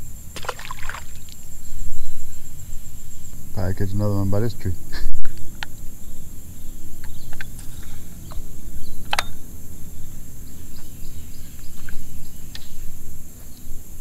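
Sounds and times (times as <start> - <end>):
bird chirps: 5.4 - 13.7.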